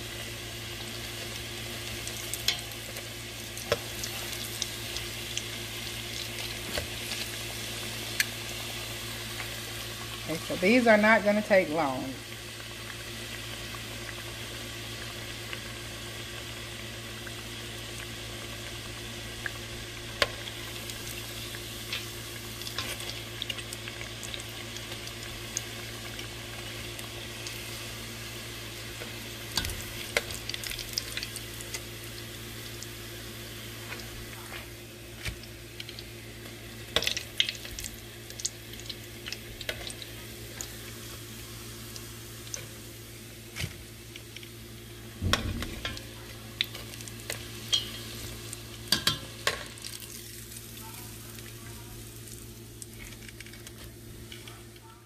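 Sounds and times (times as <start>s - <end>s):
food sizzling in oil: 0.0s - 54.8s
metal tongs tapping pot: 47.7s - 48.0s, 48.9s - 49.7s.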